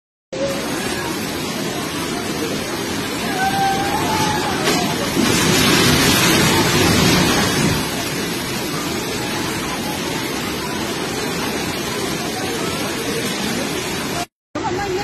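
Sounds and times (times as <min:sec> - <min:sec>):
floodwater rushing: 0:00.4 - 0:15.0
house crashing into water: 0:03.0 - 0:11.3.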